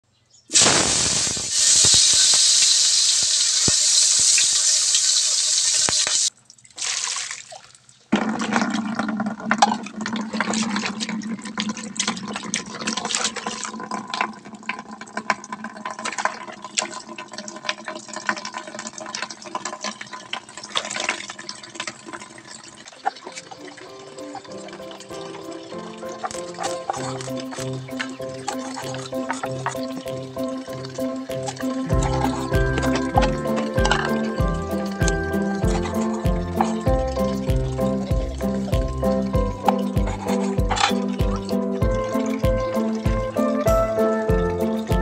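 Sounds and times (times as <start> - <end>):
sizzling in a wok: 0.5 - 6.3
water splashing in a basin: 0.5 - 45.0.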